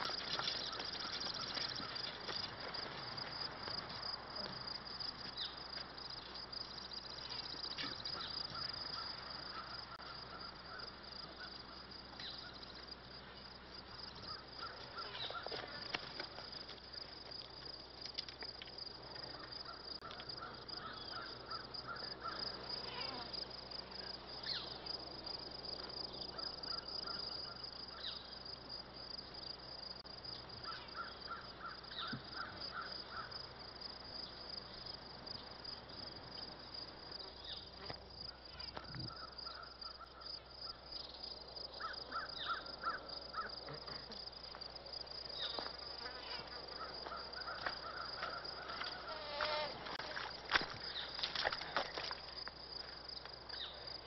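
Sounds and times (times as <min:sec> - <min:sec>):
outdoor background hiss: 0:00.0 - 0:54.0
crows cawing: 0:19.4 - 0:22.4, 0:30.6 - 0:33.3, 0:41.8 - 0:43.5, 0:46.8 - 0:49.1.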